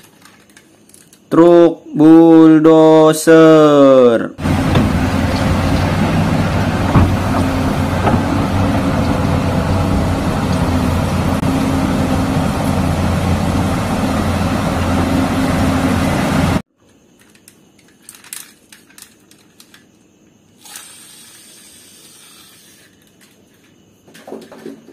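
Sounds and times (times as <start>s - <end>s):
plastic toy truck clicks and rustles: 0.0s - 1.3s, 16.8s - 20.0s, 20.6s - 24.9s
bulldozer diesel engine running: 4.4s - 16.6s.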